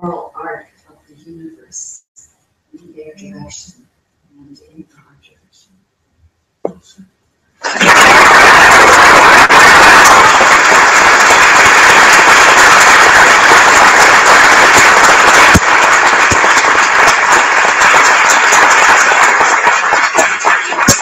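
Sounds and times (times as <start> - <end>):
audience applauding: 7.6 - 21.0.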